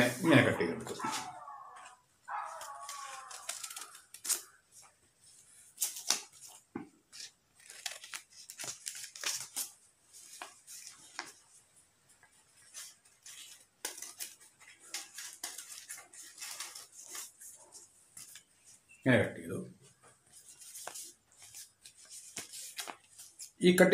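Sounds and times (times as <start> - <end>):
scissors cutting paper: 2.3 - 4.6.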